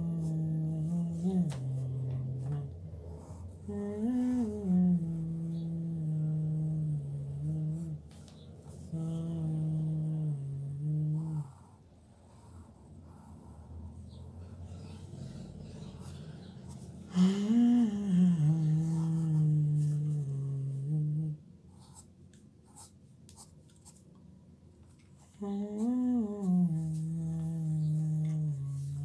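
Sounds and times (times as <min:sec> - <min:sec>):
man humming a tune: 0:00.0 - 0:08.2, 0:08.8 - 0:11.7, 0:17.1 - 0:21.5, 0:25.3 - 0:29.0
pencil scratching on paper: 0:12.3 - 0:16.9, 0:21.7 - 0:24.1.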